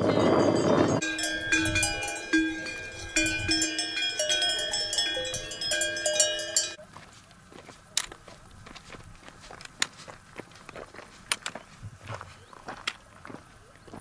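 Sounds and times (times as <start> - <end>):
livestock bells clanking: 0.0 - 6.8.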